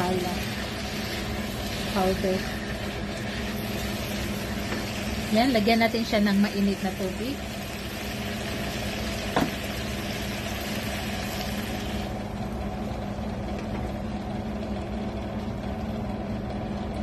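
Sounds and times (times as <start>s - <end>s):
water hissing in hot pan: 0.0s - 12.1s
steady low hum: 0.0s - 17.0s.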